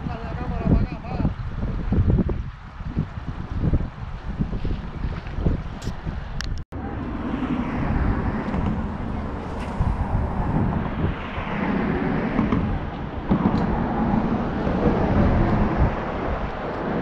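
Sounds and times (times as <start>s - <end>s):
wind buffeting microphone: 0.0s - 17.0s
road traffic passing: 5.7s - 17.0s.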